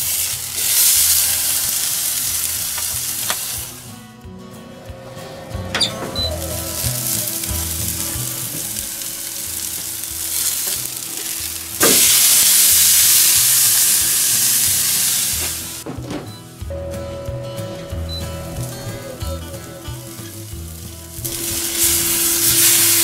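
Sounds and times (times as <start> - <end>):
steak sizzling on a grill: 0.0 - 4.0, 5.8 - 15.8, 16.9 - 23.0.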